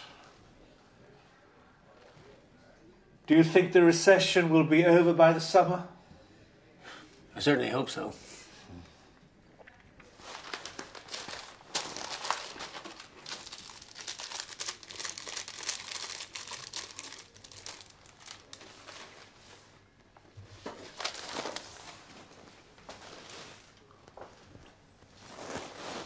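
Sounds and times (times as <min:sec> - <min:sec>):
newspaper rustling and crinkling: 0:10.1 - 0:19.7, 0:20.6 - 0:23.9.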